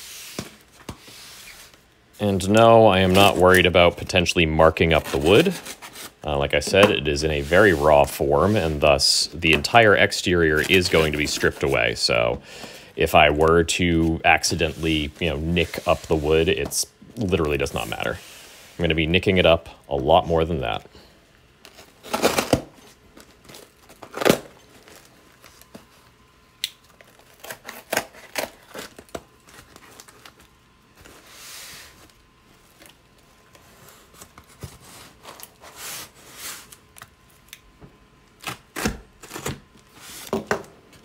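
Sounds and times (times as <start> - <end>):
cardboard being torn: 4.9 - 6.2, 27.0 - 30.3.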